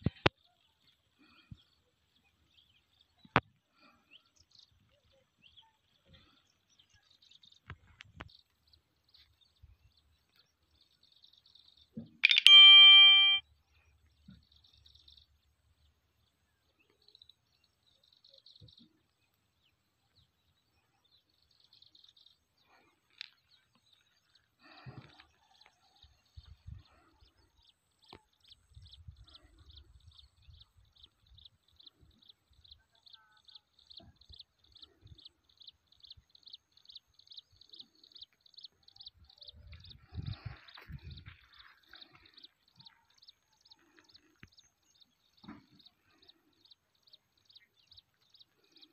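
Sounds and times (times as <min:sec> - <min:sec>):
short high chirps: 0:12.2 - 0:13.4.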